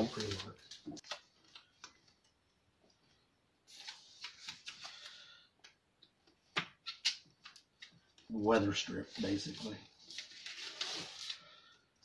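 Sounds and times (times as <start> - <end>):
foam strip rustling and crackling: 0.0 - 1.7.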